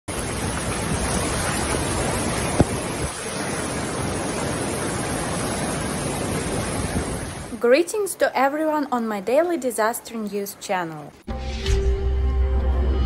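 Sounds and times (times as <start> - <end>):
floodwater rushing: 0.1 - 9.1.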